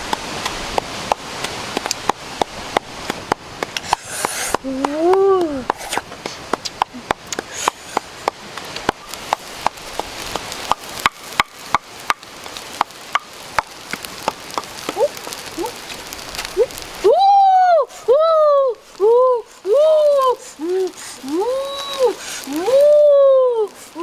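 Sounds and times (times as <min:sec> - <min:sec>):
wood fire popping and crackling: 0:00.0 - 0:24.0
pan sizzling: 0:07.5 - 0:17.2.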